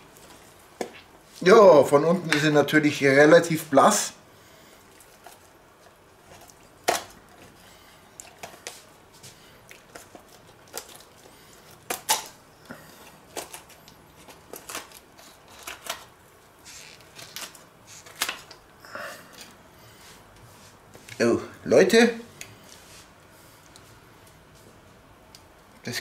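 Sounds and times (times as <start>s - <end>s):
poultry shears crunching through bones: 4.8s - 7.6s, 9.6s - 12.4s, 13.0s - 18.6s.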